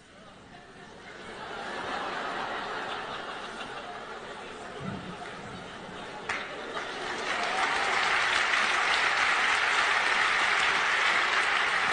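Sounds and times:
audience applauding: 0:05.2 - 0:11.9.

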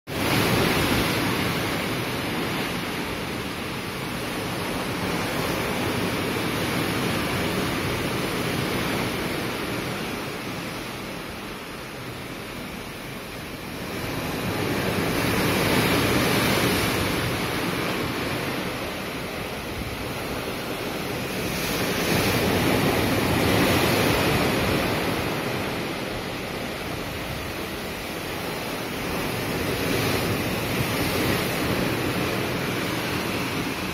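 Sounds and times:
rough sea rushing along hull: 0:00.1 - 0:33.9
wind on microphone: 0:13.3 - 0:33.9.

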